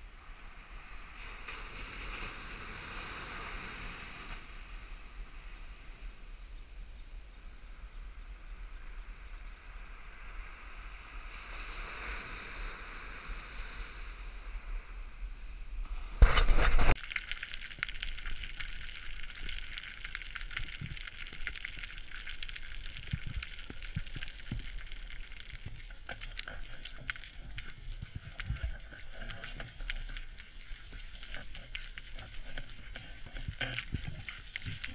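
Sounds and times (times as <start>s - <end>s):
surf on a beach: 0.0s - 6.2s, 8.3s - 16.9s
soft wind: 0.0s - 34.9s.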